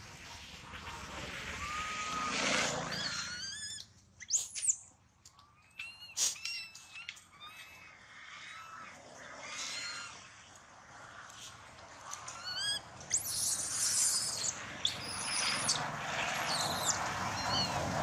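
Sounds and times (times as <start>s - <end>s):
baby monkey screaming: 1.6s - 4.8s, 5.7s - 10.2s, 12.3s - 17.8s
baby monkey squeaking: 2.9s - 4.8s, 5.7s - 7.8s, 9.7s - 10.1s, 12.3s - 15.8s, 16.4s - 17.8s.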